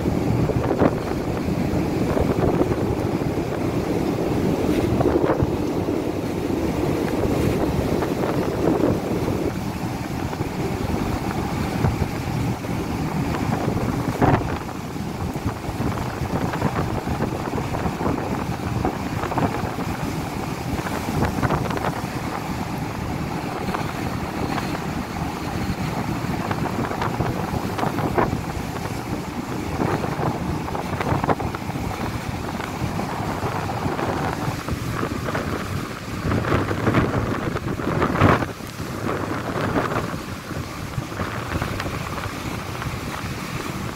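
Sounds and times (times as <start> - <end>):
gale-force wind buffeting microphone: 0.0 - 43.9.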